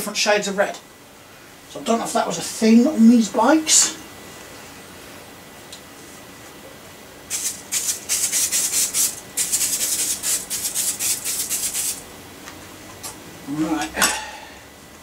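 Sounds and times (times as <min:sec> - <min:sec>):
aerosol can rattling: 0:07.3 - 0:12.0
aerosol spray hissing: 0:07.3 - 0:12.0.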